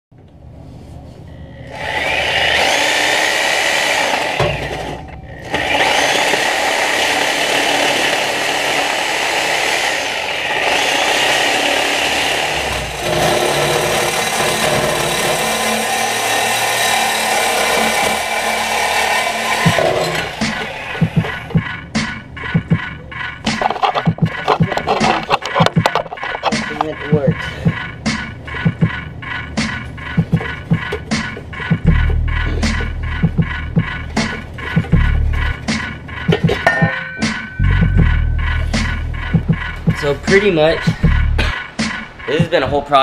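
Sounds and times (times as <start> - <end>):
reciprocating saw cutting metal pipe: 1.7 - 22.2, 30.4 - 42.3.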